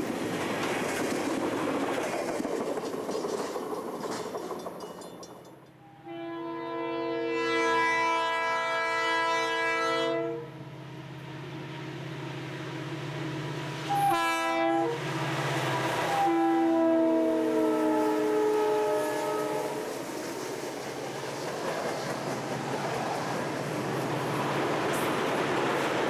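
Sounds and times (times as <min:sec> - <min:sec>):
engine and rail rumble: 0:00.0 - 0:26.0
locomotive air horn blasts: 0:05.8 - 0:10.6, 0:13.9 - 0:15.0, 0:16.1 - 0:19.9.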